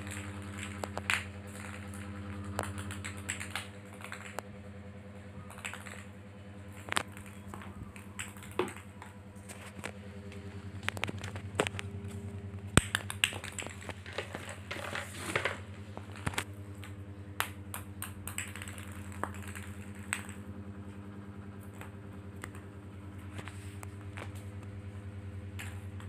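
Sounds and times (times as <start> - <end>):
steady low hum: 0.0 - 26.0
kitten tapping on tiled floor: 12.8 - 15.5.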